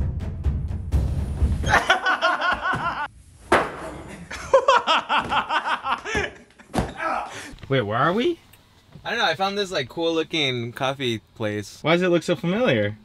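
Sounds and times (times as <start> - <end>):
people laughing: 1.6 - 3.1, 4.2 - 7.2.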